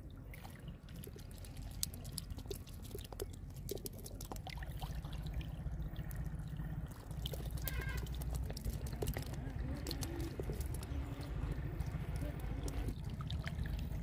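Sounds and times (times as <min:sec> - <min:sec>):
steady low rumble: 0:00.0 - 0:14.0
water trickling and dripping: 0:00.0 - 0:14.0.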